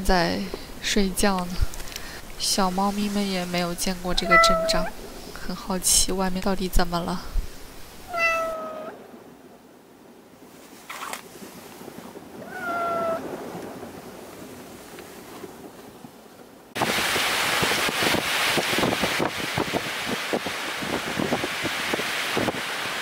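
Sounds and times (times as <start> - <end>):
rush of storm wind: 0.0 - 23.0
cat meowing: 4.1 - 4.9, 8.1 - 9.0, 12.4 - 13.2.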